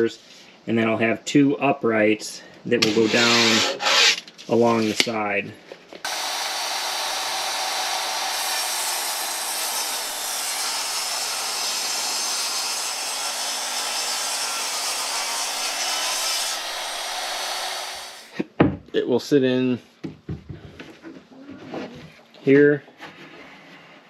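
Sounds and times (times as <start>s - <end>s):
table saw cutting wood: 2.8s - 4.2s, 6.1s - 18.3s.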